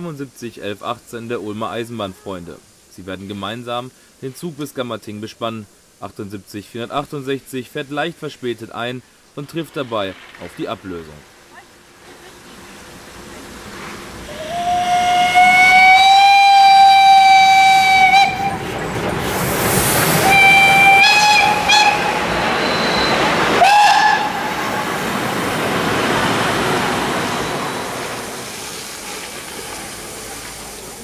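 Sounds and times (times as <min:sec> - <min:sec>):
steam train hiss and running: 0:00.0 - 0:31.0
steam locomotive whistle: 0:14.3 - 0:18.7, 0:20.1 - 0:25.1.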